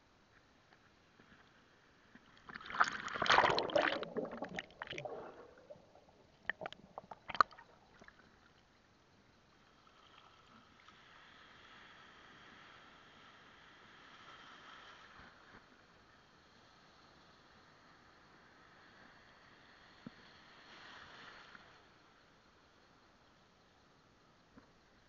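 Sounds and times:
faint steady hiss: 0.0 - 25.0
sea water splashing: 2.4 - 8.6
sharp clicks underwater: 2.4 - 8.7.

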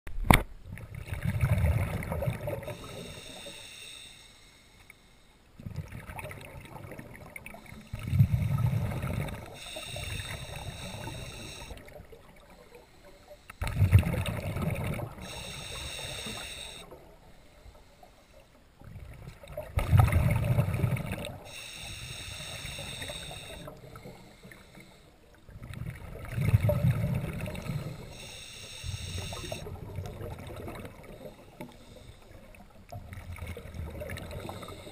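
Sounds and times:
bubbling exhale underwater: 0.8 - 3.1, 5.6 - 12.6, 13.6 - 17.1, 18.8 - 21.5, 25.5 - 28.1, 28.9 - 31.5
regulator inhale hiss: 2.6 - 5.5, 7.5 - 13.8, 15.1 - 18.6, 21.3 - 25.4, 27.6 - 29.7, 30.9 - 32.7, 34.2 - 34.9.

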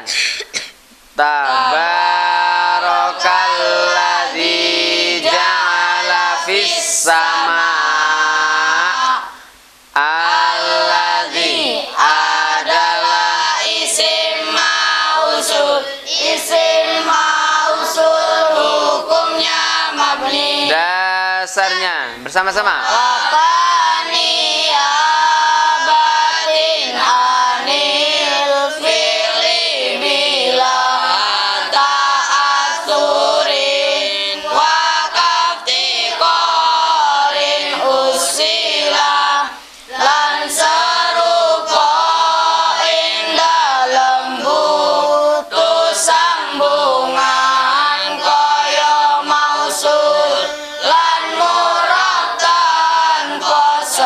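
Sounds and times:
children chanting in unison: 1.2 - 20.9, 22.8 - 54.0.

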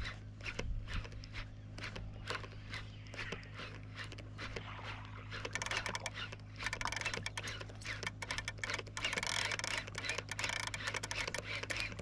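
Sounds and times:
fishing reel clicking: 5.3 - 12.0.

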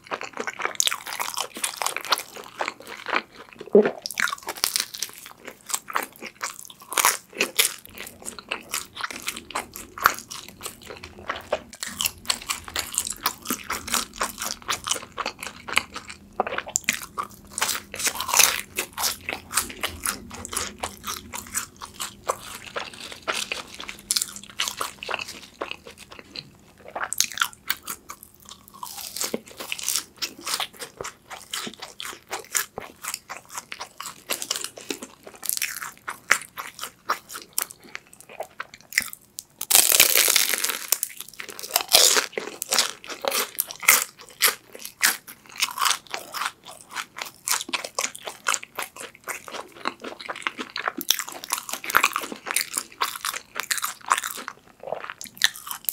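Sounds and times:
chewing with crunches: 0.0 - 55.9
loud crunching bite: 38.9 - 55.9.

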